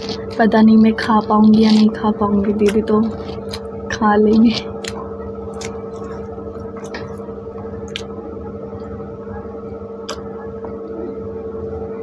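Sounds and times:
chewing and squishy mouth sounds: 0.0s - 3.7s, 4.4s - 8.1s
steady hum: 0.0s - 12.0s.

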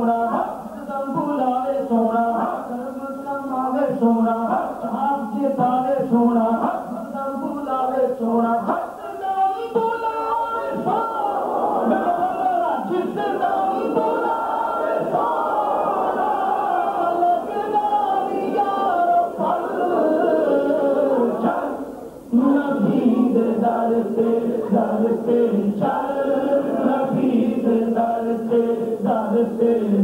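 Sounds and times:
group singing unaccompanied: 9.7s - 30.0s.

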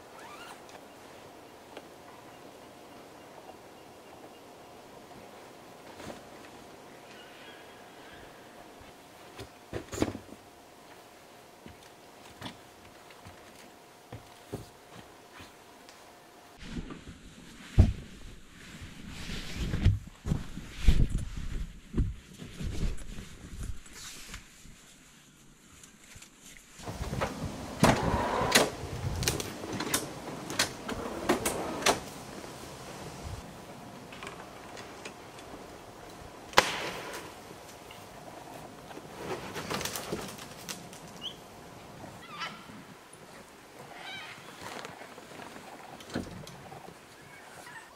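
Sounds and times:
rustling: 11.7s - 47.9s.

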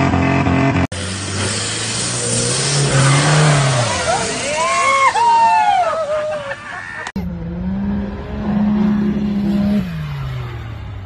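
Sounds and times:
buggy engine running high: 0.0s - 11.0s
off-road vehicle revving: 0.0s - 11.0s
people shouting: 2.9s - 7.1s.

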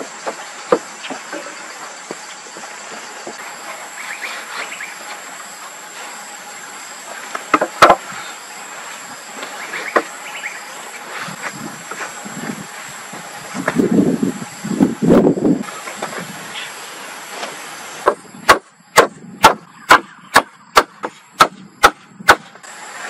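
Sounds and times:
steady high hiss: 0.0s - 23.0s
wooden poles knocking together: 7.4s - 8.1s.

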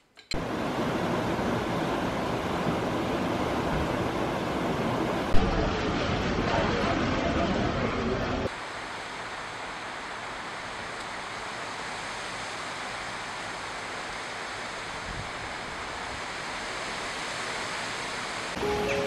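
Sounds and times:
rain falling on trees: 4.8s - 19.0s.

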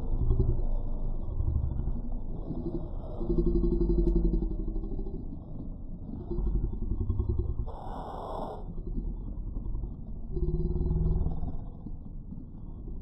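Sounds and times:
slowed low muffled drone: 0.0s - 7.9s, 8.5s - 13.0s.

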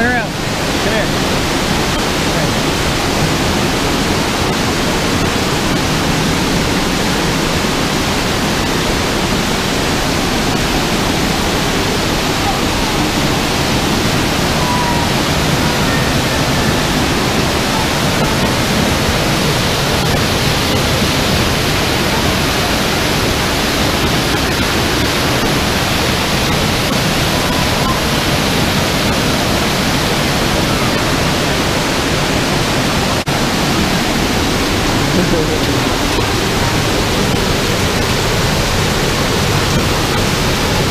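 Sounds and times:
waterfall rushing: 0.0s - 40.9s.

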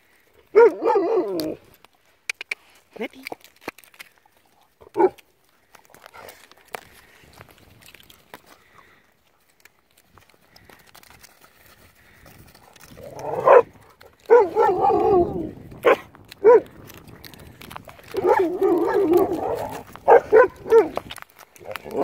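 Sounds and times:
dogs barking: 0.5s - 1.6s, 5.0s - 5.2s, 13.2s - 16.7s, 18.1s - 21.0s
dog wavering calls: 14.3s - 16.6s, 18.1s - 21.0s.

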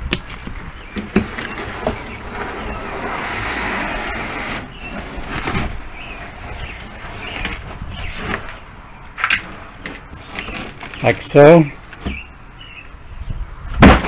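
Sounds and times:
cardboard rubbing: 1.2s - 8.5s
cardboard scraping slide: 1.2s - 8.6s.

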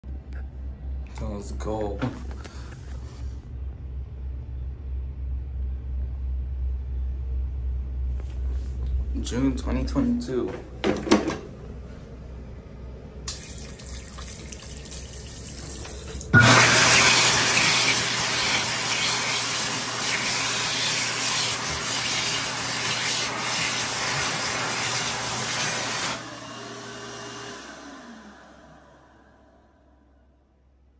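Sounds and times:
hand dryer blowing air: 15.6s - 29.8s
motor winding down: 15.8s - 30.1s.

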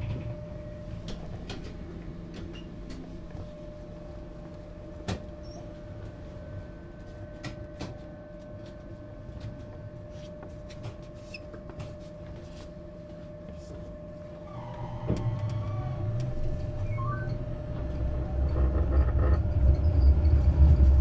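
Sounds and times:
tram electrical hum: 0.0s - 21.0s
low rumble: 14.8s - 21.0s.

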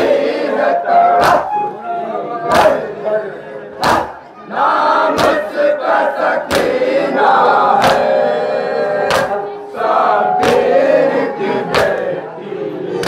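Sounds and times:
men chanting together: 0.0s - 1.5s, 2.4s - 13.0s
hands slapping chests: 1.2s - 1.5s, 3.8s - 4.2s, 5.1s - 5.5s, 6.4s - 6.8s, 7.8s - 8.2s, 9.1s - 9.4s, 10.4s - 10.8s, 11.7s - 12.1s.

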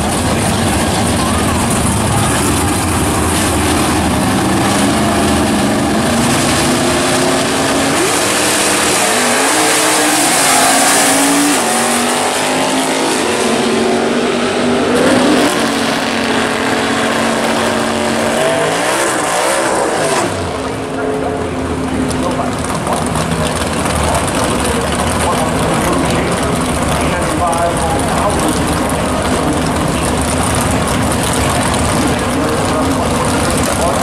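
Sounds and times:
car engine revving hard: 0.0s - 21.0s
drag racing engines accelerating: 0.0s - 34.0s.

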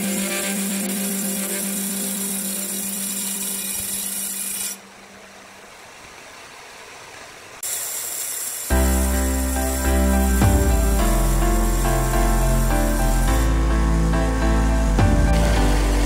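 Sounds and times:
band saw cutting log: 0.0s - 4.9s, 7.6s - 16.0s
sustained hum: 8.7s - 16.0s.

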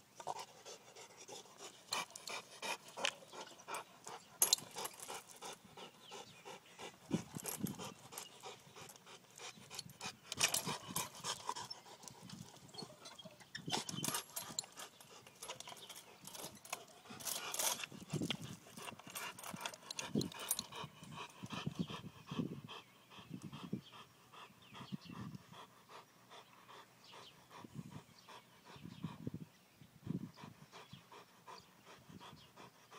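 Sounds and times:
dog panting hard: 0.2s - 32.9s
metal swing chains rattling: 10.3s - 21.3s.

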